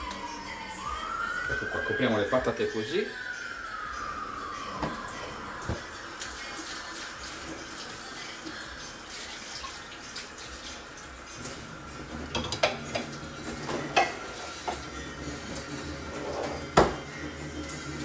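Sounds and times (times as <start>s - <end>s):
pots and pans clattering: 11.4s - 14.9s, 16.1s - 17.1s.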